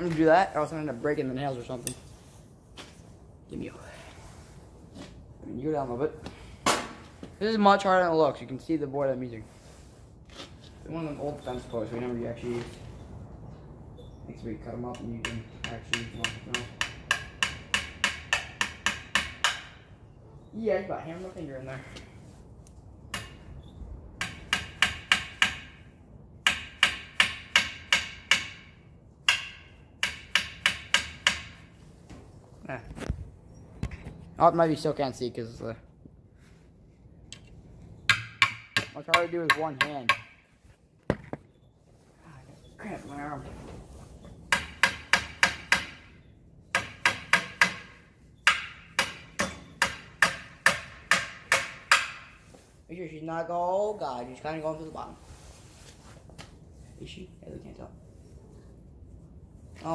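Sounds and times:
hammer driving nails into wood: 46.7 - 52.4.

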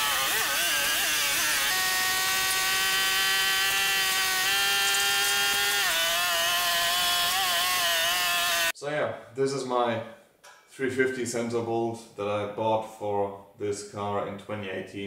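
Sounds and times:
chainsaw running at high revs: 0.0 - 8.7.

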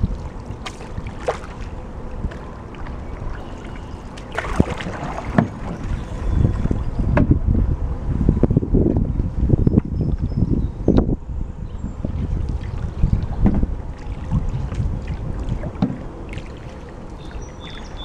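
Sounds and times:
paddle strokes in water: 0.0 - 7.2, 12.1 - 18.0
knocks and splashes: 0.0 - 7.3, 12.4 - 17.8
wind rumble on microphone: 0.0 - 18.0.

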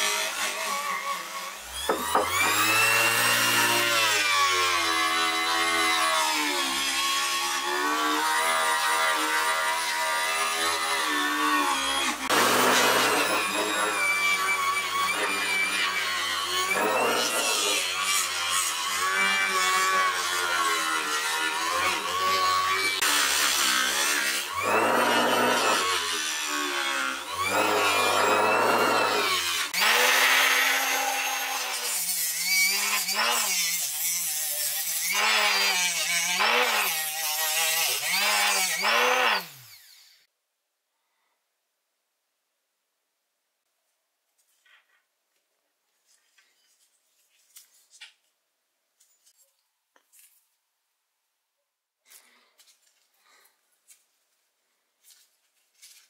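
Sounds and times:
power tool motor: 0.0 - 40.3.

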